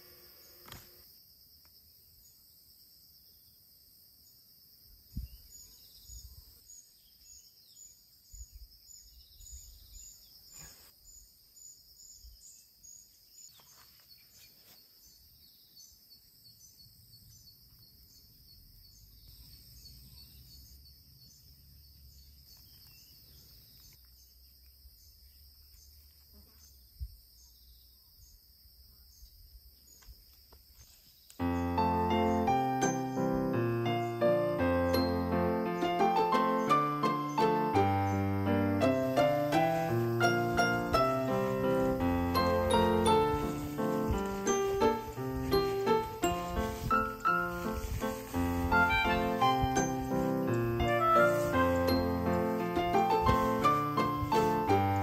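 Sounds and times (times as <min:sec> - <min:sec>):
insect chorus chirping: 0:00.0 - 0:55.0.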